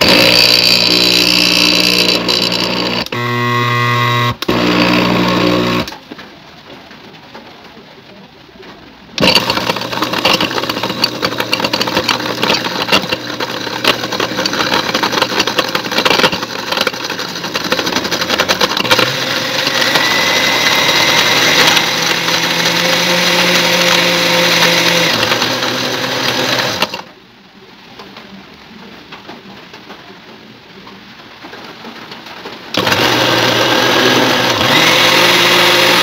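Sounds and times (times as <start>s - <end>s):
electric blender running: 0.0s - 6.0s, 9.2s - 27.1s, 32.8s - 36.0s.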